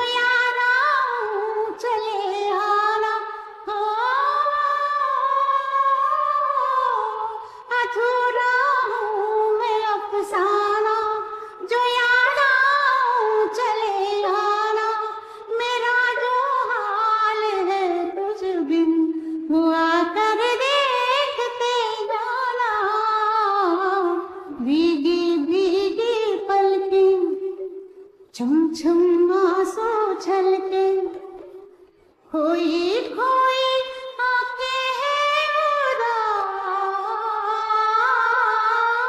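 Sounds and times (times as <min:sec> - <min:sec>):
woman singing alone: 0:00.0 - 0:27.7, 0:28.4 - 0:31.4, 0:32.3 - 0:39.0
singer breathing: 0:07.4 - 0:07.7, 0:15.2 - 0:15.5.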